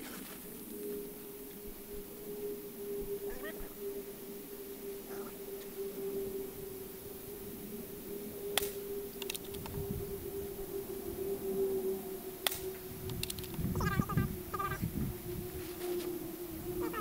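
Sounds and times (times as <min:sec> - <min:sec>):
air rifle shot cracking: 0:08.5 - 0:09.4, 0:12.4 - 0:12.7
light clicks: 0:08.6 - 0:09.8, 0:12.4 - 0:13.6.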